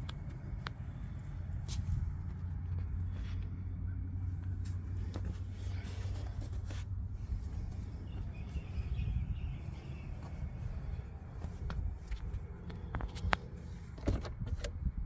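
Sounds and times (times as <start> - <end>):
low outdoor rumble: 0.0 - 15.0
faint bird chirps: 7.9 - 10.7.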